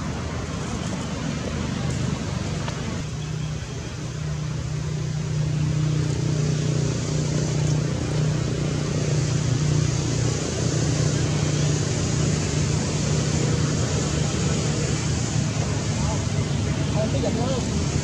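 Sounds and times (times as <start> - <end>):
low engine hum: 0.0 - 18.0.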